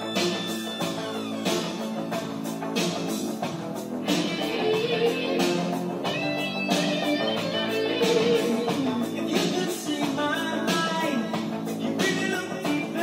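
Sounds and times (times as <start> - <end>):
rock music from a record: 0.0 - 13.0.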